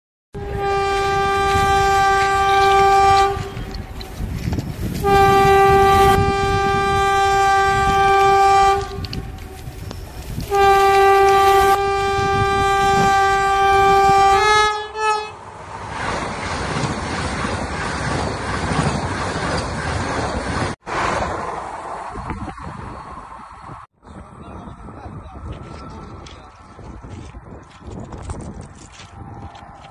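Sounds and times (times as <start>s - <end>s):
train horn blasts: 0.4s - 4.3s, 4.9s - 15.4s
train rumble: 0.4s - 29.9s.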